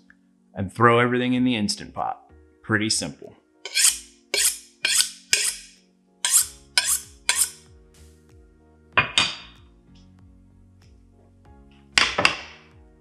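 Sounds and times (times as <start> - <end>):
knife scraping on honing steel: 3.6 - 7.6.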